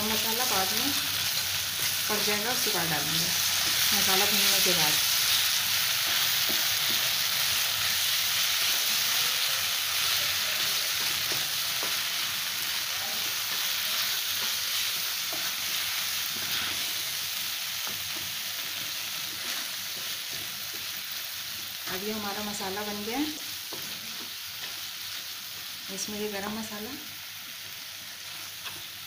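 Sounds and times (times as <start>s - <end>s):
food sizzling in oil: 0.0s - 29.0s
spatula scraping pan: 13.4s - 17.2s.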